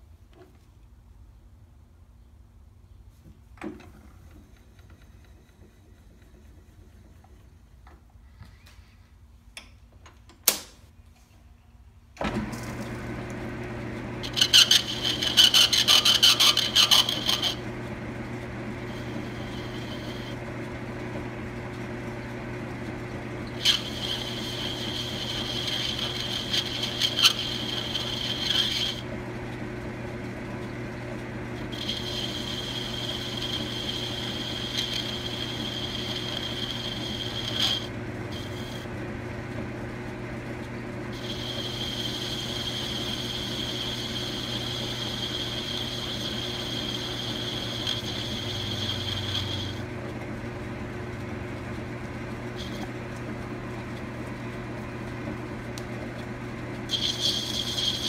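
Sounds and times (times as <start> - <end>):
metal lathe humming: 12.3 - 54.6, 56.8 - 58.0
lathe cutting ring: 13.0 - 49.9, 52.6 - 52.9, 56.9 - 58.0.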